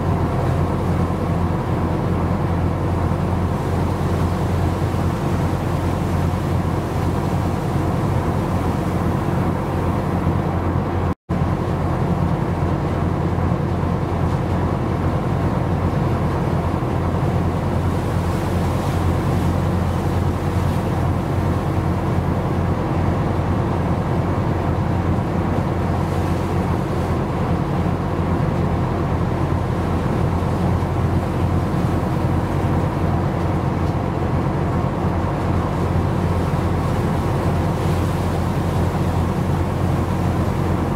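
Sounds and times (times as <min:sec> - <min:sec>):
ship engine droning: 0:00.0 - 0:40.9
wind and sea hiss: 0:00.0 - 0:40.9.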